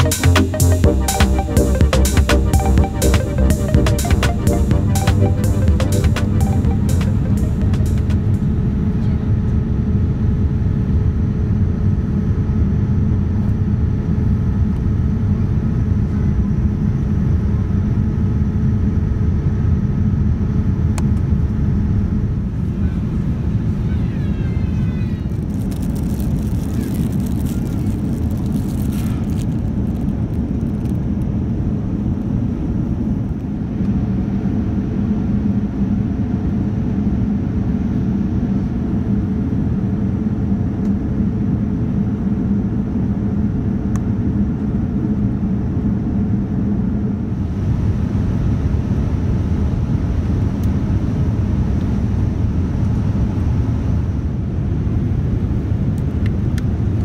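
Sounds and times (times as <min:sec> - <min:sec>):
airplane cabin engine drone: 0:00.6 - 0:57.0
plastic bag crinkling: 0:25.3 - 0:30.1.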